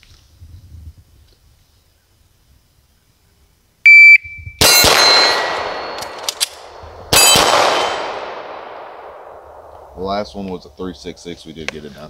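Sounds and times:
shot timer beep: 3.9s - 6.0s
steel target ringing: 4.6s - 8.8s
pistol shot: 4.6s - 10.0s.

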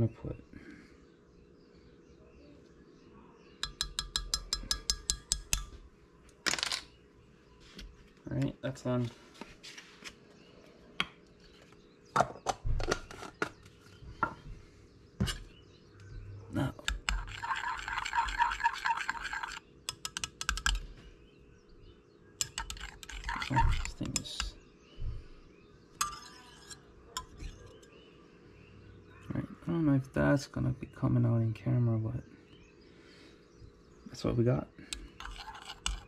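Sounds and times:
stirrer scraping a glass cup: 16.6s - 20.9s, 22.4s - 24.6s, 26.0s - 27.9s, 34.9s - 36.0s.

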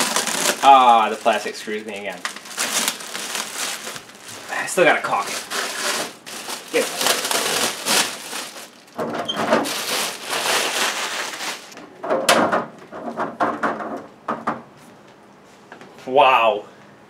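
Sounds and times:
rustling plastic wrapping: 0.0s - 11.8s.

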